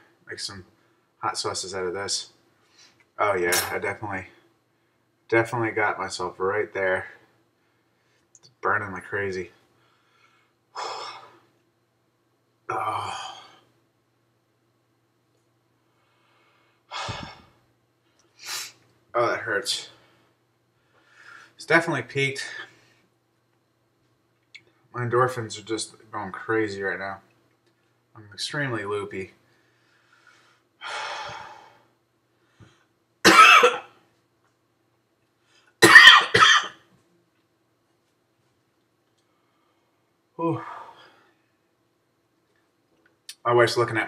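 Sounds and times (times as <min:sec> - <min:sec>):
man breathing heavily in pain: 0:16.4 - 0:17.6
man coughing: 0:33.3 - 0:33.9, 0:35.8 - 0:36.8.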